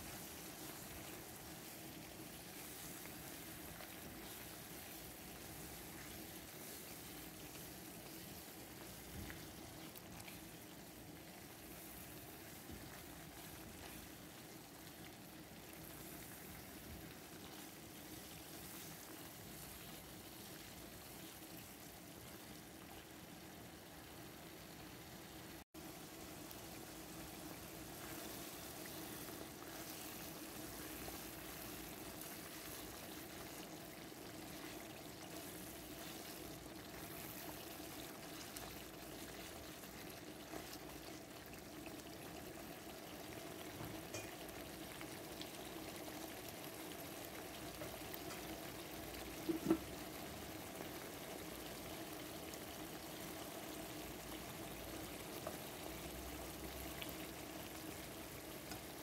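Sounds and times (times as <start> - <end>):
sauce bubbling in a pan: 0.0 - 59.0.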